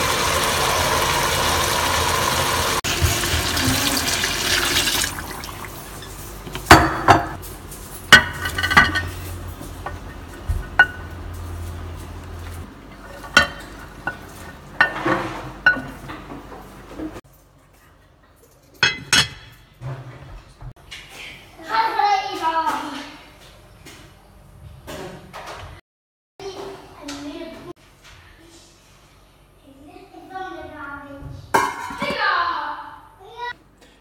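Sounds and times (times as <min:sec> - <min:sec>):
wine hissing and bubbling in pot: 0:00.0 - 0:06.0.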